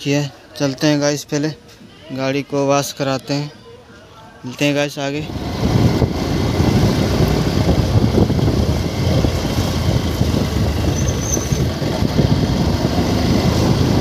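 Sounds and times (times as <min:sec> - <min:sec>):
motorcycle engine running: 0:05.3 - 0:14.0
wind on microphone: 0:05.3 - 0:14.0.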